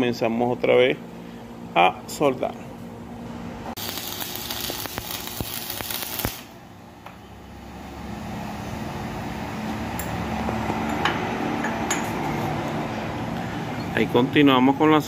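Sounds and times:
steady low hum: 0.0 - 15.0
arc welding crackling: 3.8 - 6.7.

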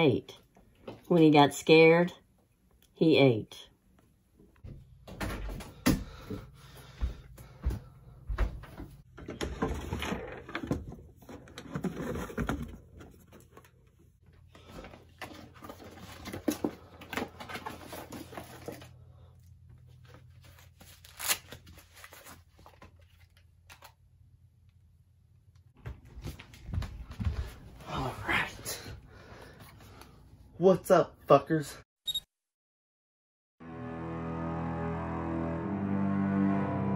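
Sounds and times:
cardboard and paper rustling: 9.2 - 19.1, 19.7 - 23.9.

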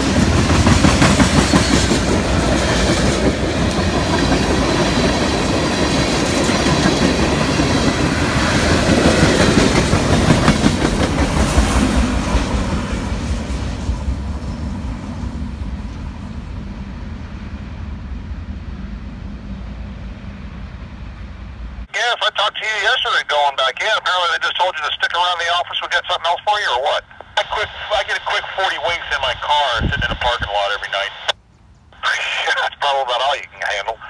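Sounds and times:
freight train cars rolling past: 0.0 - 21.9.

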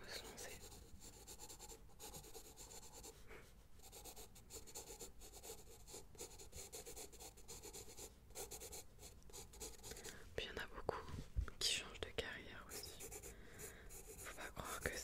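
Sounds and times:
pencil scratching on paper: 0.2 - 3.2, 3.8 - 10.0, 12.7 - 15.0.

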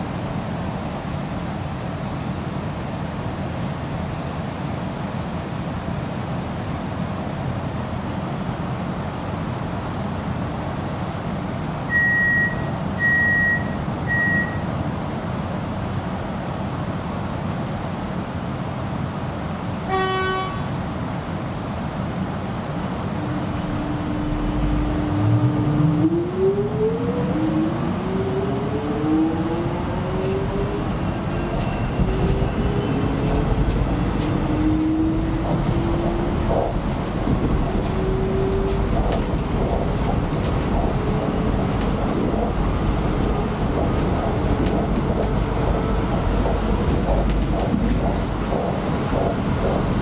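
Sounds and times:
train interior low hum: 0.0 - 50.0
door-closing warning beeps: 11.9 - 14.7
train horn toot: 19.9 - 20.8.

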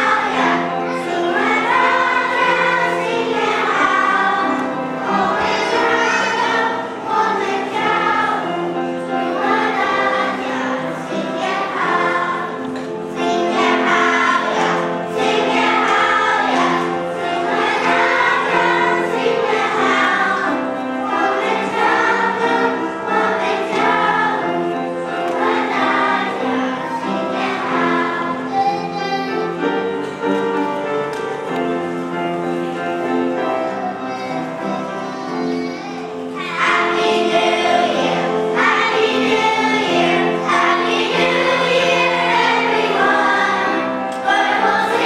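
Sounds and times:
children's choir singing: 0.0 - 45.0.

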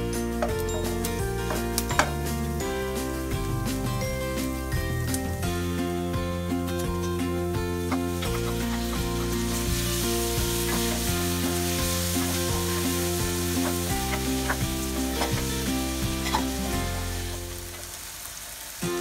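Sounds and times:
soft background music: 0.0 - 18.2
spatula scraping and tapping pan: 0.4 - 2.5, 7.9 - 17.4
food sizzling in frying pan: 7.8 - 19.0.

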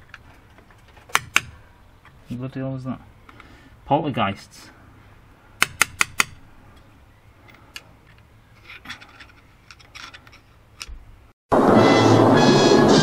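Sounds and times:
dramatic orchestral music: 11.6 - 13.0.

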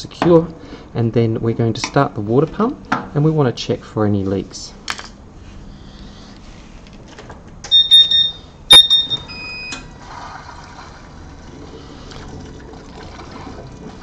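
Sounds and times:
high electronic beeps: 7.7 - 9.8
water running through hoses: 10.0 - 14.0.

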